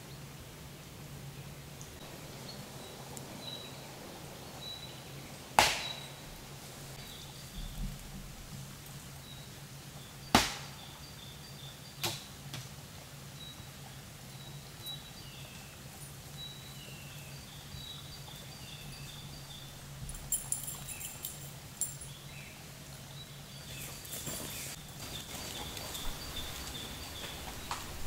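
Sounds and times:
faint crackles: 0:01.8 - 0:10.8, 0:23.6 - 0:28.0
sharp snap: 0:05.6 - 0:06.1, 0:10.4 - 0:10.8.

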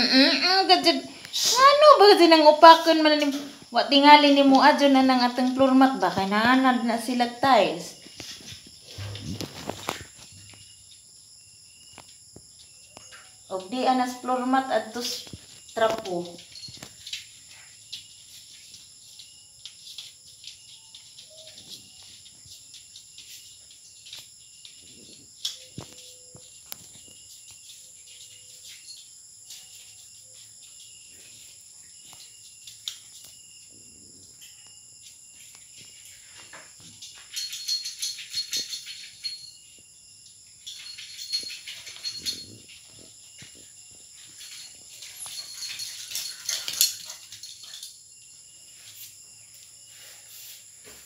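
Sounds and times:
puppies scratching plastic mat: 0:08.0 - 0:10.6, 0:14.9 - 0:33.3.

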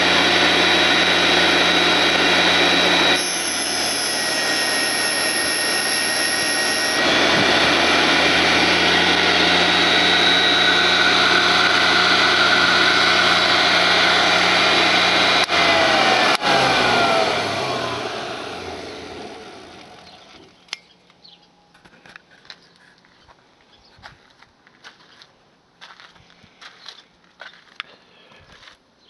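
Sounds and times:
grinding wheel whine: 0:00.0 - 0:20.7
electric motors humming and whining: 0:00.0 - 0:20.8.

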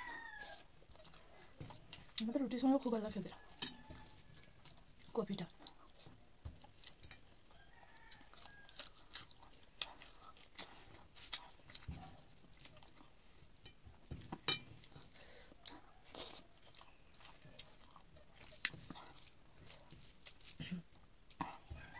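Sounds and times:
fingers working food on plate: 0:00.0 - 0:07.4
chewing and mouth noises: 0:00.0 - 0:21.9.

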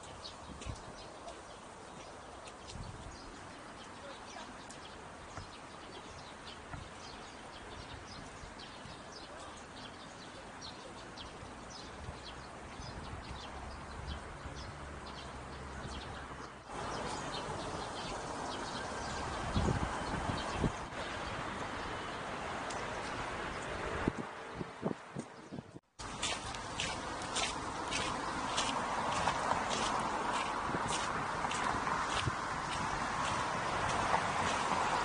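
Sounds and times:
small birds chirping: 0:00.0 - 0:23.8.

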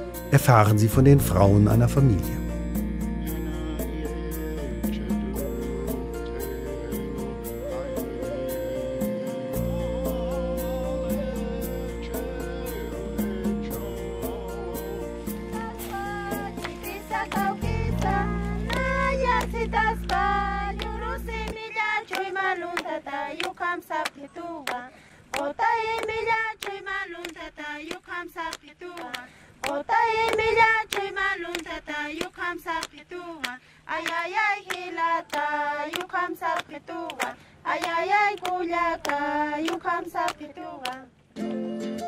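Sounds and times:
women singing together: 0:03.5 - 0:41.2
hand claps: 0:15.2 - 0:41.0.

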